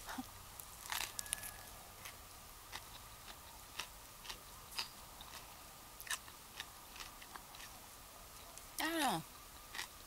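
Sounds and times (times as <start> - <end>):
low steady hiss: 0.0 - 10.0
person chewing food: 0.6 - 7.8, 9.7 - 10.0.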